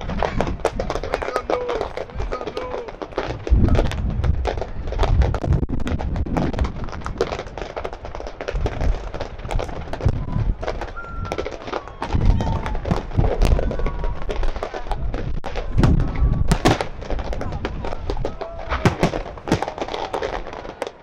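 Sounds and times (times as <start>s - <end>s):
fireworks popping and crackling: 0.0s - 21.0s
low firework thuds: 0.0s - 21.0s
faint firework whistles: 10.1s - 14.6s.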